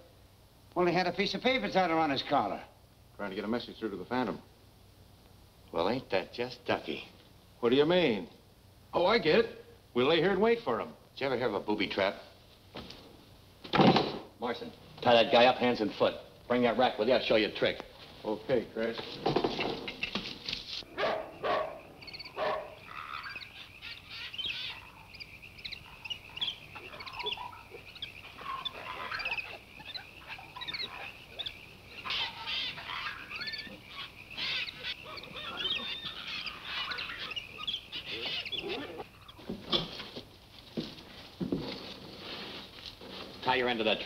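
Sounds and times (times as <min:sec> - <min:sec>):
knocks and scuffling: 0:17.8 - 0:20.9, 0:38.1 - 0:44.0
jungle birds chirping and squawking: 0:19.4 - 0:39.5.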